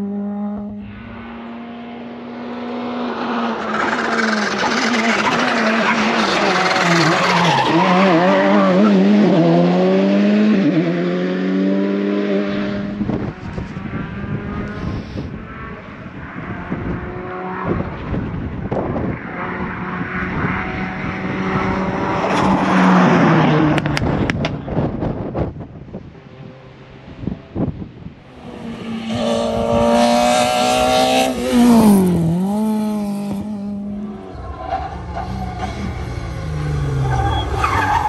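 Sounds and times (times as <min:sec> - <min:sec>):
rally car accelerating hard: 0:00.0 - 0:25.6, 0:28.3 - 0:38.0
car engine driving past: 0:00.2 - 0:08.0.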